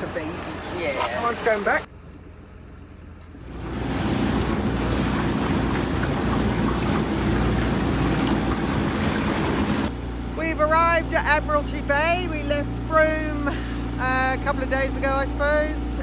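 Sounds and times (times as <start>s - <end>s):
outboard motor running: 0.0s - 1.9s, 3.3s - 16.0s
water rushing past hull: 3.4s - 9.9s.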